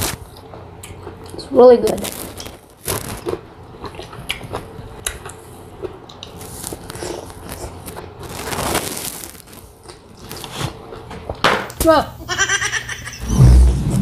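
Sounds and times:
person biting and chewing fruit: 0:02.0 - 0:11.4.

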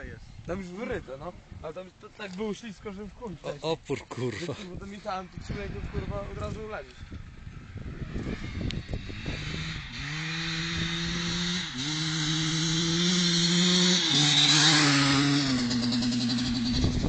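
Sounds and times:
motocross bike engine buzzing: 0:05.4 - 0:17.0.

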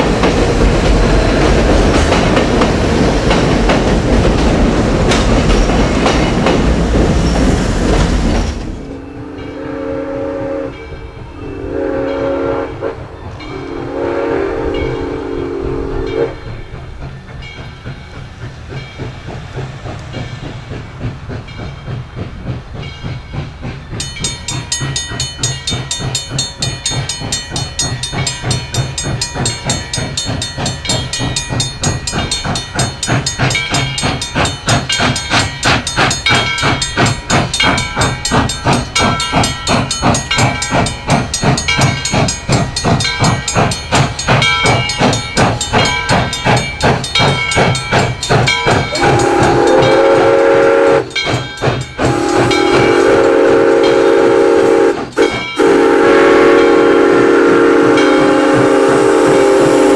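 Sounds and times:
steam locomotive chuffing: 0:00.0 - 0:59.9
steam whistle: 0:09.2 - 0:16.6, 0:48.9 - 0:51.2, 0:52.0 - 0:59.9.

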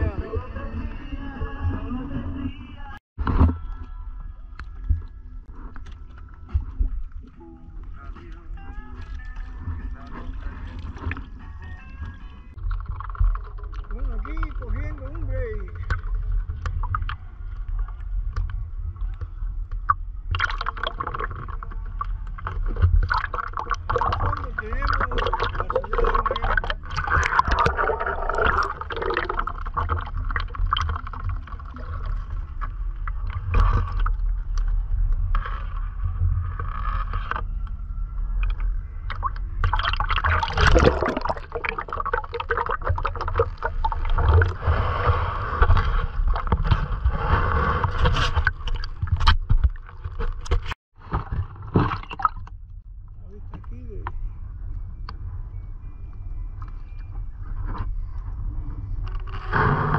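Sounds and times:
seawater lapping and sloshing: 0:08.0 - 0:15.1, 0:19.8 - 0:52.5
low wind rumble: 0:09.5 - 0:59.9
splashes and knocks: 0:12.6 - 0:14.7, 0:19.8 - 0:34.3, 0:38.4 - 0:44.6, 0:47.9 - 0:52.6.

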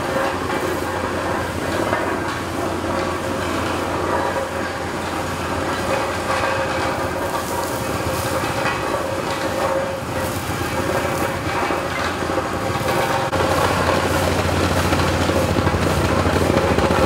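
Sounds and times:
engine running steadily: 0:00.0 - 0:17.0.

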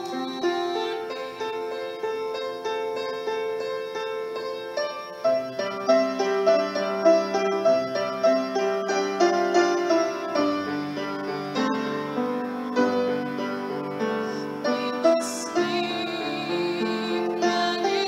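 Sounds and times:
woman singing with vibrato: 0:00.0 - 0:02.6, 0:14.3 - 0:18.0
grand piano broken chords: 0:00.0 - 0:18.0.

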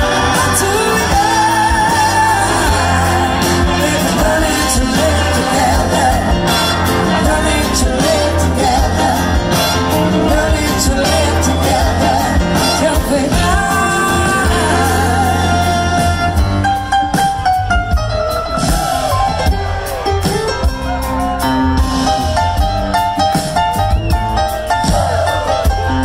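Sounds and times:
woman singing lead: 0:00.0 - 0:16.3
live rock and soul band: 0:00.0 - 0:26.0.

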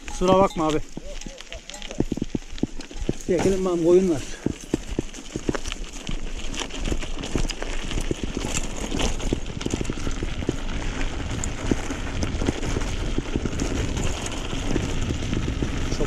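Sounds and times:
bike tyres rattling on gravel: 0:00.0 - 0:16.0.

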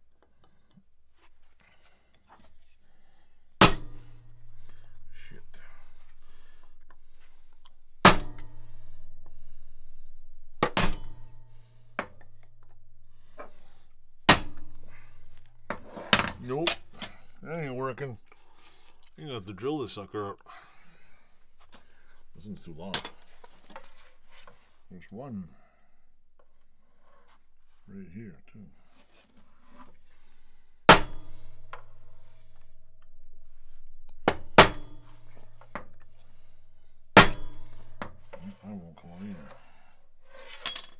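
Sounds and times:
hammer striking metal punch: 0:03.6 - 0:04.7, 0:08.0 - 0:08.8, 0:10.6 - 0:11.3, 0:14.3 - 0:16.8, 0:30.9 - 0:31.7, 0:34.3 - 0:35.1, 0:37.2 - 0:37.8.

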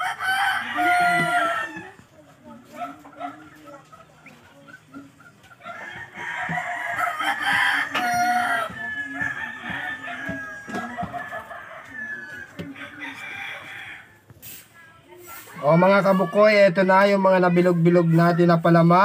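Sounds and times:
rooster crowing: 0:00.0 - 0:02.0, 0:05.7 - 0:14.1
rooster clucking: 0:00.0 - 0:19.0.

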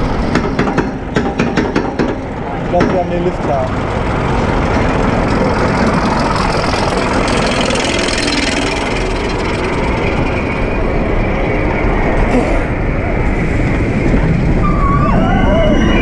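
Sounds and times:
roller coaster rumbling on steel track: 0:00.0 - 0:16.0.

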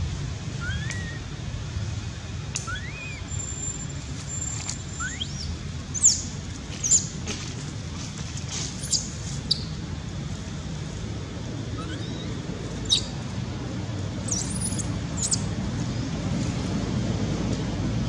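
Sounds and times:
steady low rumble: 0:00.0 - 0:18.0
baby monkey squeaking: 0:00.6 - 0:01.2, 0:02.5 - 0:03.6, 0:05.0 - 0:07.1, 0:08.8 - 0:09.7, 0:11.8 - 0:13.2, 0:14.2 - 0:15.5.

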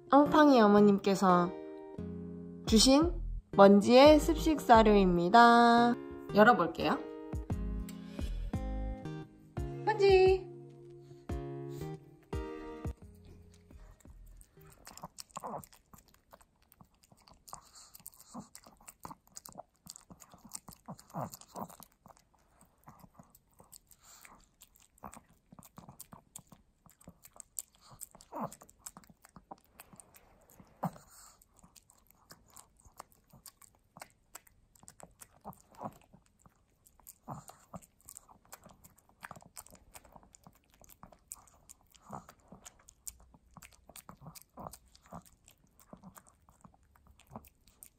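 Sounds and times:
dog chewing wet food: 0:11.1 - 0:47.9.

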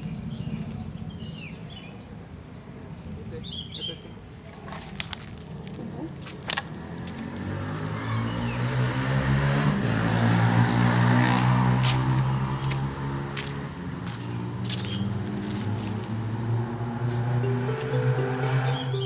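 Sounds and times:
vehicle engine passing by: 0:06.7 - 0:19.0.

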